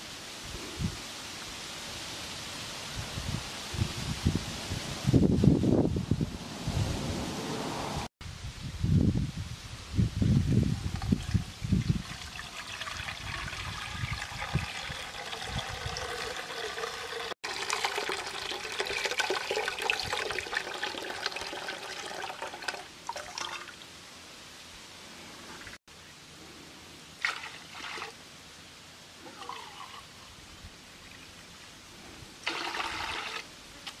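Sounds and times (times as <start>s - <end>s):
liquid pouring into metal pot: 10.9s - 23.8s, 29.3s - 30.1s, 32.4s - 33.4s.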